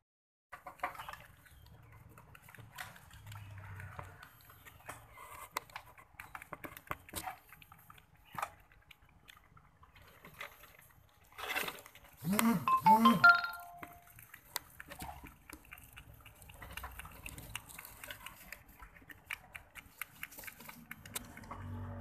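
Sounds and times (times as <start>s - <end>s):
small clicks and scratches: 0.5s - 12.5s, 13.8s - 22.0s.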